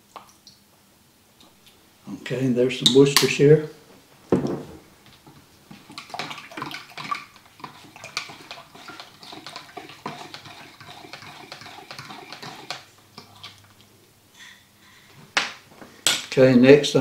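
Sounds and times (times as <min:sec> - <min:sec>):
liquid swishing: 0:05.2 - 0:14.0.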